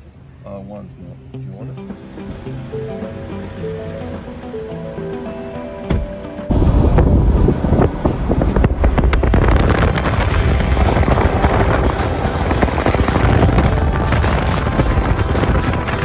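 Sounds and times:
vehicle driving on sand: 6.5s - 16.0s
wind buffeting microphone: 6.5s - 16.0s.

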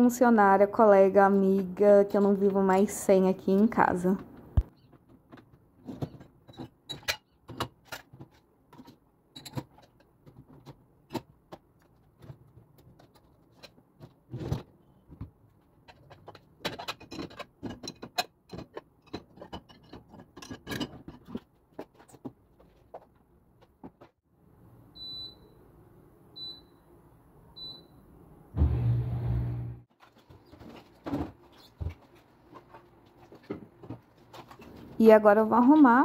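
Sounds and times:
dishes clinking and clattering: 15.9s - 21.4s.

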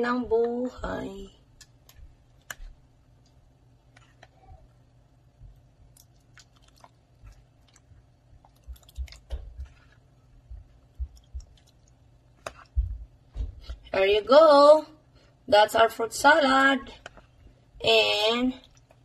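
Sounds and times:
wet squelches of stirring: 1.4s - 13.9s, 16.9s - 19.0s.

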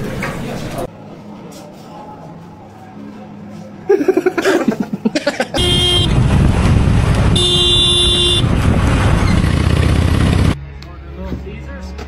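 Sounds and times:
road and wind noise: 5.1s - 12.0s
vehicle horn honking: 5.6s - 6.2s, 7.3s - 8.6s.

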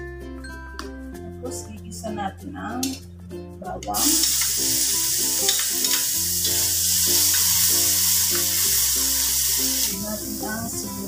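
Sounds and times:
background music: 0.0s - 11.0s
garlic sizzling in hot oil: 4.0s - 11.0s.

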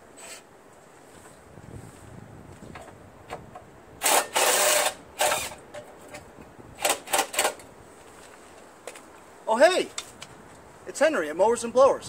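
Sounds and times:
cordless drill bursts: 4.0s - 5.6s, 6.8s - 7.6s.

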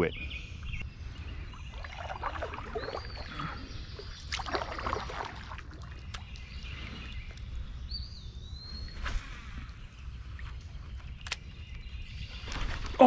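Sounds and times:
paddle splashing in water: 1.8s - 3.3s, 4.1s - 6.3s.

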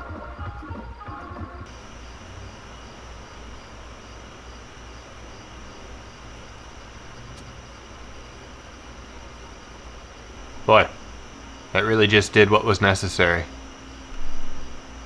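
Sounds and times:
background music: 0.0s - 1.7s
faint high steady tones: 0.0s - 15.0s
low hum with hiss: 0.0s - 15.0s.

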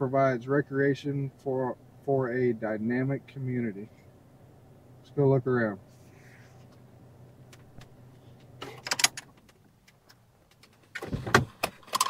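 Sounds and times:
faint low hum: 0.0s - 11.6s
sharp clicks and rattles: 7.5s - 12.0s
car door thump opening: 11.0s - 11.8s.

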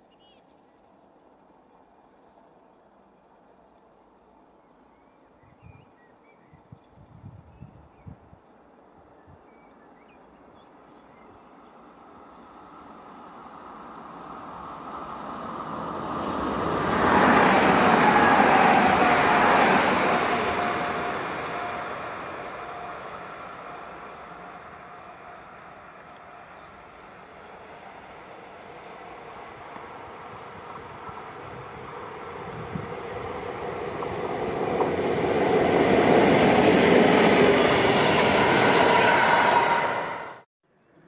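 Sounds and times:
train whine: 10.2s - 40.5s
train rumble and wheel noise: 10.7s - 40.4s.

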